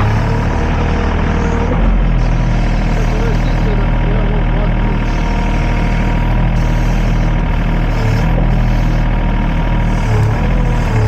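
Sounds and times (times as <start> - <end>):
excavator diesel engine running: 0.0 - 11.0.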